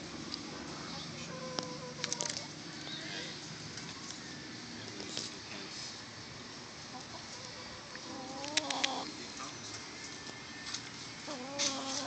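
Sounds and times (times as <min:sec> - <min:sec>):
hens calling: 0:06.8 - 0:09.3, 0:11.2 - 0:12.0.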